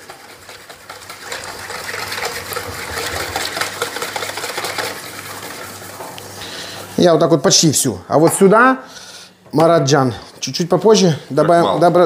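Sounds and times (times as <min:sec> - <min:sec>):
whisk clicking and scraping bowl: 0:00.0 - 0:06.4.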